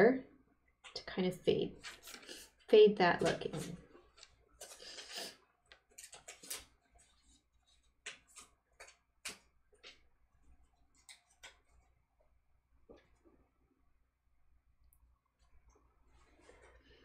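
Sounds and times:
brush ticking and tapping on paper: 5.7s - 12.0s.

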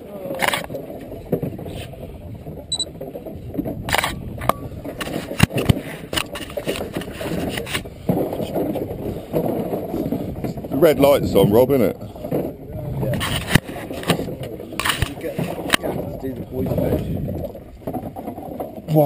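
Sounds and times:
low rumble of boat: 0.0s - 19.0s
fishing tackle clicks and knocks: 13.2s - 18.9s.

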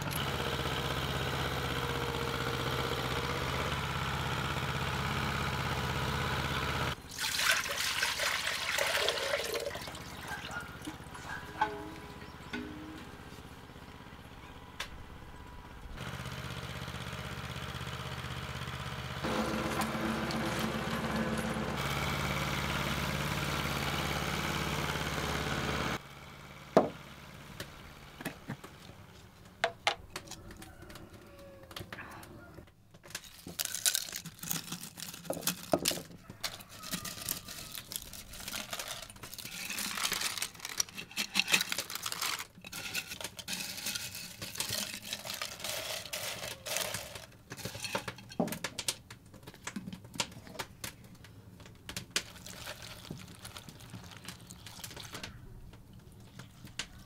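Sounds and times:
engine hum: 0.0s - 7.1s, 9.4s - 32.7s, 50.6s - 57.0s
dried mushrooms rattling in glass jar: 33.1s - 48.5s, 52.2s - 55.3s.

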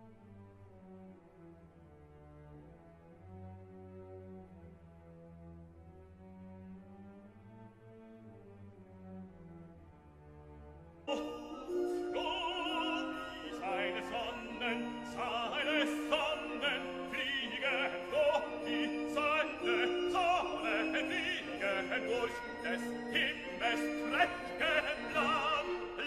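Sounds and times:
orchestral accompaniment: 11.0s - 26.0s
operatic singing: 11.1s - 26.0s.

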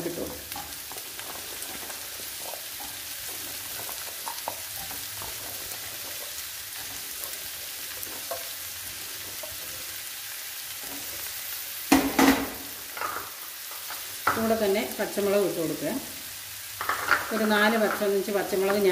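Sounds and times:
vegetables sizzling in oil: 0.0s - 18.9s.

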